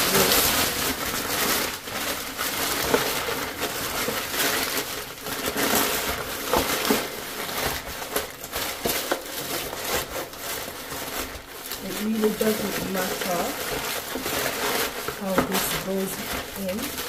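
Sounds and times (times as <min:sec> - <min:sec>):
paper crumpling: 0:00.0 - 0:17.0.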